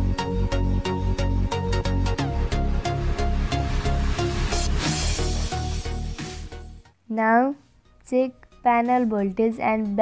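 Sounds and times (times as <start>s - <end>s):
electronic music with steady beat: 0.0s - 6.9s.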